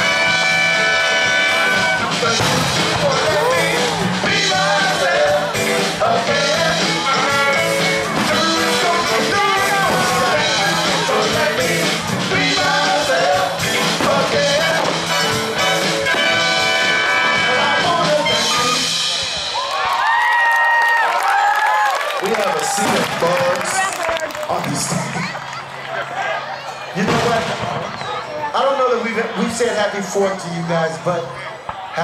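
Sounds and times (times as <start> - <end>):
person singing: 0.0 - 19.1
live funk band playing: 0.0 - 19.7.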